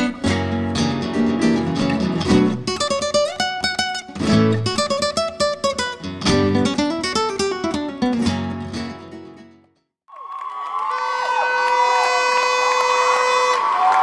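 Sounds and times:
flamenco acoustic guitar: 0:00.0 - 0:09.7.

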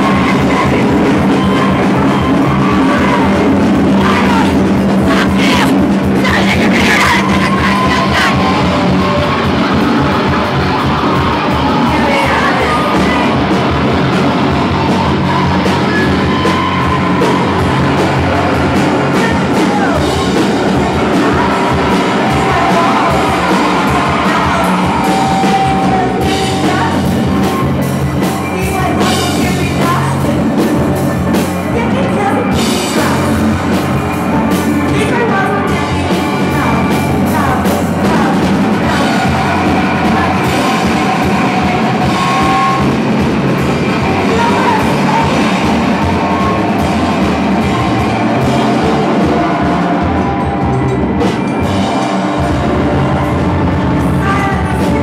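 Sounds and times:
electric guitar wall of noise: 0:00.0 - 0:55.0
person yelling vocals: 0:04.0 - 0:08.7.

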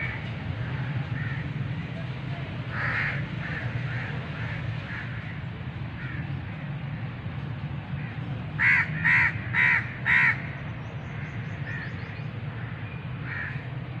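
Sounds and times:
bird calling: 0:08.6 - 0:13.6.

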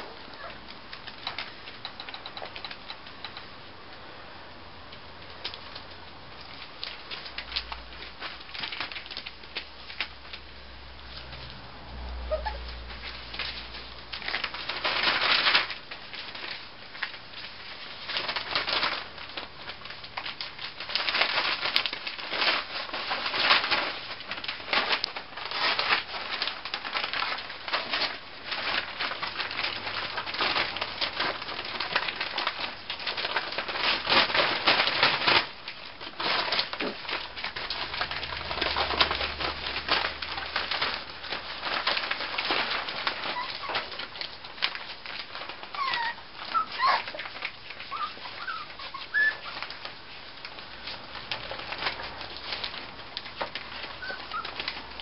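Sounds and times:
newspaper rustling under puppies: 0:00.0 - 0:55.0
puppy squeaks: 0:00.4 - 0:00.6, 0:12.3 - 0:12.7, 0:43.3 - 0:43.8, 0:45.7 - 0:49.8, 0:54.0 - 0:54.6.

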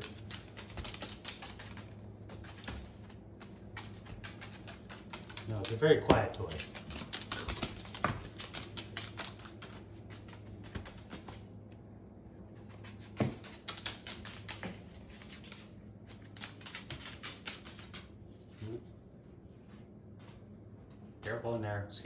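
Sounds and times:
bird toenails clicking on wood floor: 0:00.0 - 0:11.5, 0:12.6 - 0:18.1.

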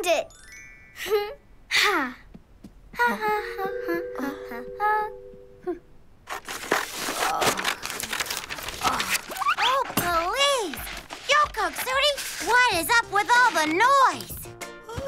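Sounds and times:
rummaging in wooden toy chest: 0:06.3 - 0:14.5.

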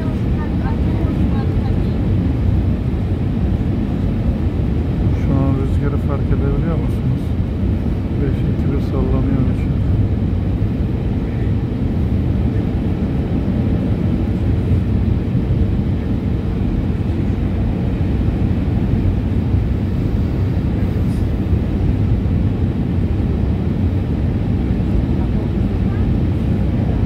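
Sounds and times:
jet engines rumbling in cabin: 0:00.0 - 0:27.0.

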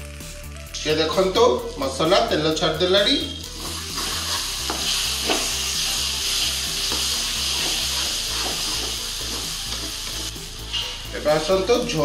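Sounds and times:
sizzling in hot oil: 0:00.0 - 0:12.0
stirring strokes in pan: 0:03.5 - 0:11.1.

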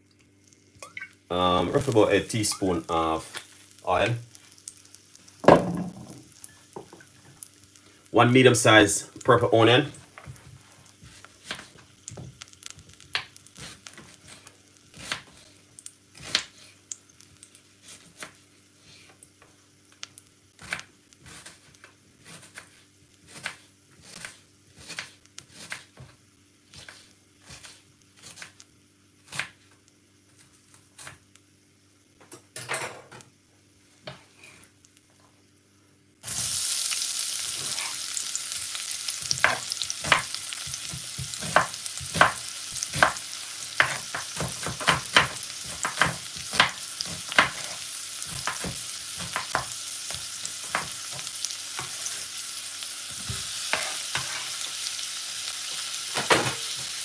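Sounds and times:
onion sizzling in hot oil: 0:00.0 - 0:32.1, 0:36.2 - 0:57.0
knife chopping on wooden board: 0:39.4 - 0:43.2, 0:43.8 - 0:47.7.

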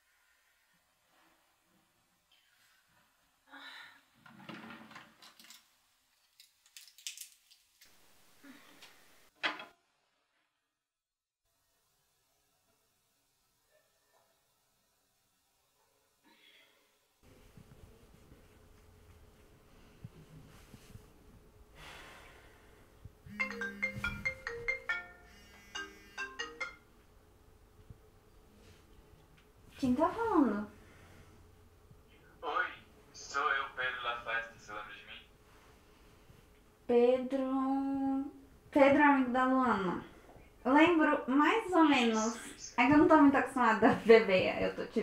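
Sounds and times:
marimba phone ringtone: 0:23.3 - 0:26.9.

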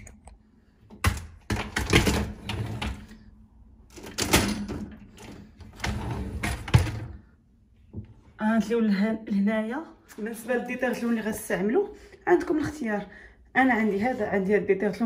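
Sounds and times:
dishwasher racks rattling: 0:03.9 - 0:07.2.

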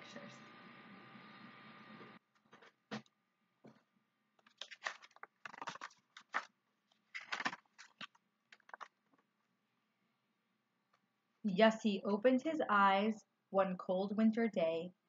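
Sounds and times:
book pages turning: 0:04.4 - 0:09.2.

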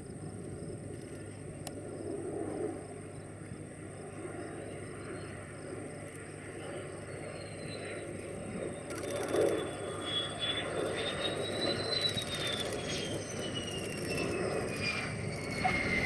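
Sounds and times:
jet engine rumble and whine: 0:00.0 - 0:16.0.

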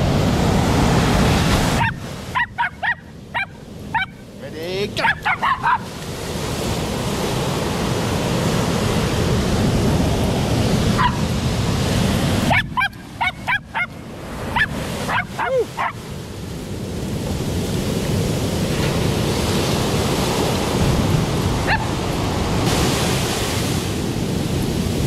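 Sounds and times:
surf breaking on beach: 0:00.0 - 0:02.8, 0:03.9 - 0:25.0
dog barking: 0:01.8 - 0:04.2, 0:05.0 - 0:05.9, 0:10.9 - 0:11.2, 0:12.4 - 0:16.0, 0:21.6 - 0:21.9.

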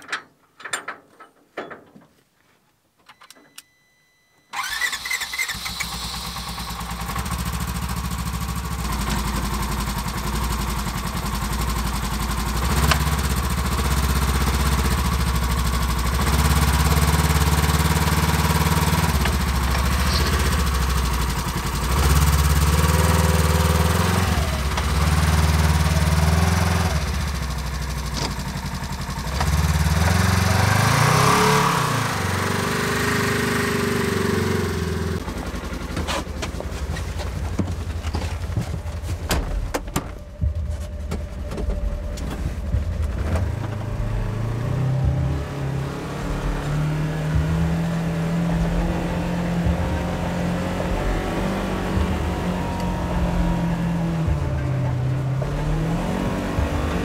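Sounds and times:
engine starting: 0:04.5 - 0:07.6, 0:19.0 - 0:21.3
engine idling and revving: 0:04.6 - 0:57.0.

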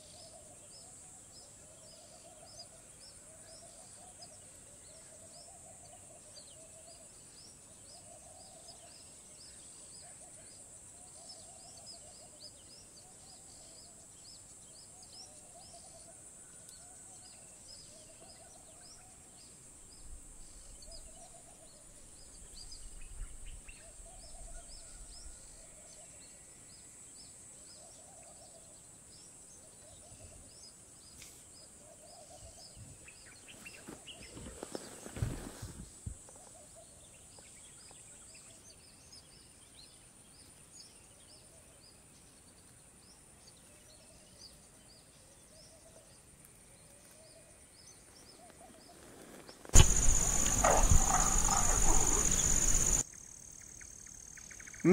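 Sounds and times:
high-pitched insect drone: 0:49.8 - 0:53.0
low repeated animal call: 0:49.8 - 0:53.0
quick chirps: 0:49.8 - 0:53.0.

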